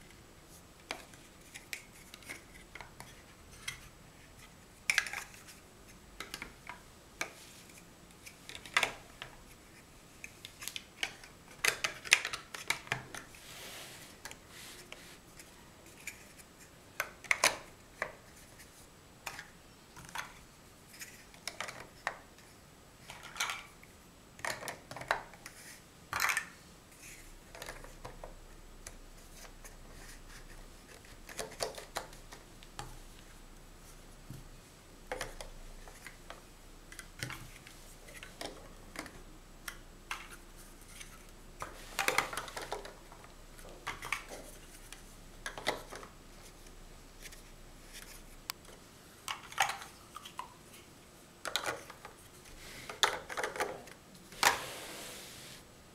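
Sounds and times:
plastic blocks clicking together: 0:51.4 - 0:52.1, 0:52.9 - 0:53.9.

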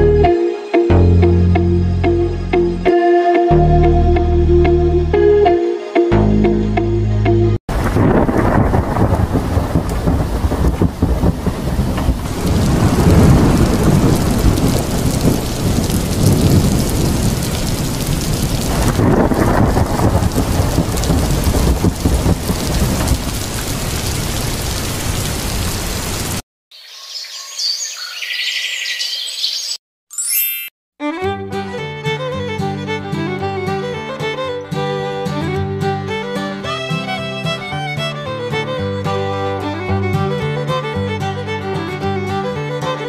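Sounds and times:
heavy rain: 0:07.7 - 0:26.4
rolling thunder: 0:07.7 - 0:26.4.

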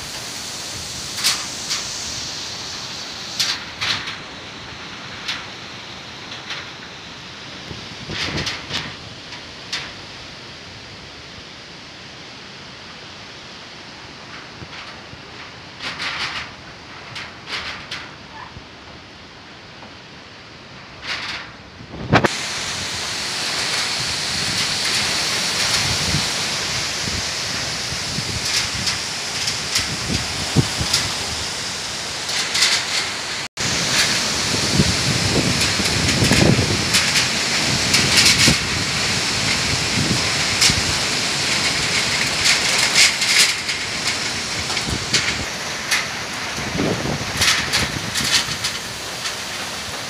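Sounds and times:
wind buffeting microphone: 0:00.0 - 0:10.0, 0:21.0 - 0:50.0
heavy rain: 0:00.0 - 0:50.0
wind tossing trees: 0:00.0 - 0:50.0.

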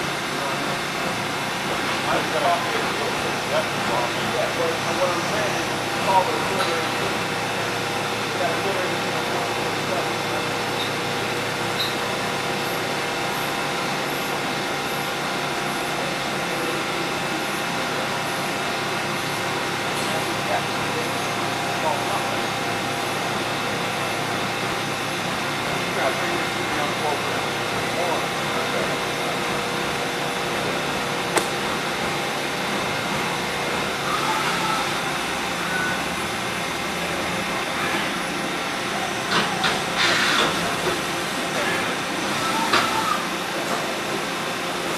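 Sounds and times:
coolant hissing: 0:18.7 - 0:44.9.

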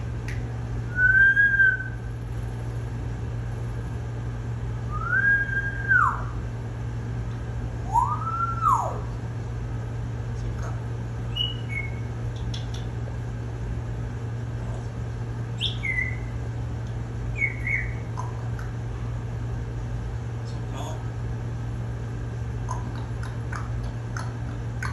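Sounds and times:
steady low hum: 0:00.0 - 0:24.9
parrot whistling: 0:00.9 - 0:02.0, 0:04.9 - 0:06.4, 0:07.8 - 0:09.0, 0:11.3 - 0:12.7, 0:15.6 - 0:16.3, 0:17.3 - 0:18.4.

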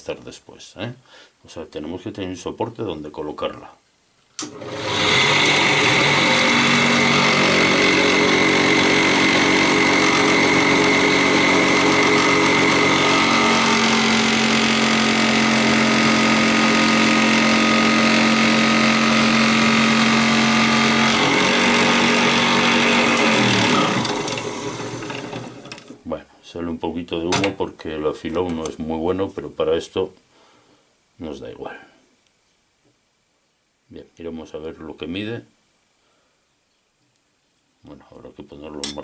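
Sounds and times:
drill press motor running: 0:04.4 - 0:26.0
motor winding down: 0:04.4 - 0:26.0
drill bit boring into wood: 0:04.5 - 0:26.0.

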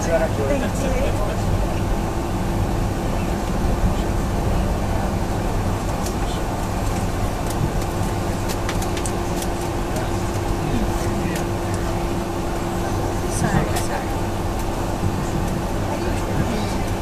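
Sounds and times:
aircraft engines droning: 0:00.0 - 0:17.0
constant cabin hum: 0:00.0 - 0:17.0.

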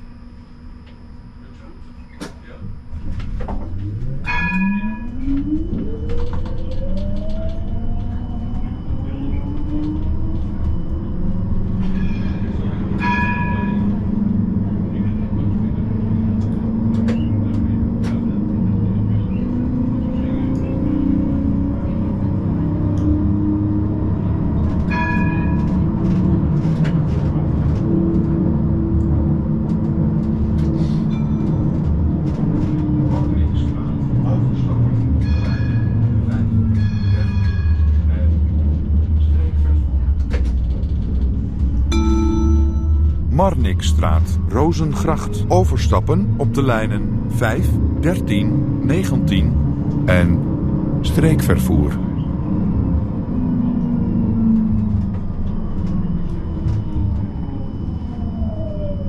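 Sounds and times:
tram electric drive whining: 0:00.0 - 0:59.0
wheels rumbling on rails: 0:01.6 - 0:59.0
tram bell ringing: 0:04.1 - 0:05.5, 0:08.8 - 0:16.3, 0:24.3 - 0:27.2, 0:35.1 - 0:38.4, 0:41.9 - 0:47.7.

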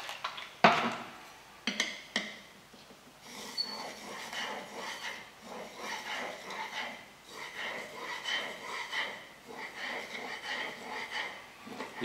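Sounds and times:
steel rubbing on wet stone: 0:03.2 - 0:12.0.

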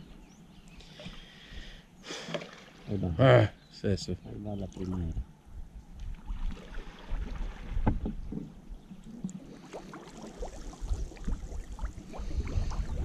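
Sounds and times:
water sloshing around boat: 0:02.2 - 0:03.1, 0:05.9 - 0:13.0.

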